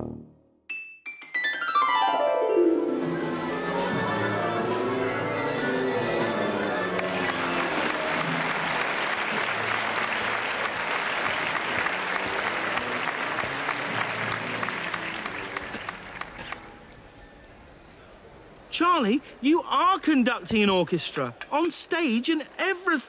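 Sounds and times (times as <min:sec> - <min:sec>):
light music: 0:00.7 - 0:17.8
audience applause: 0:06.6 - 0:16.7.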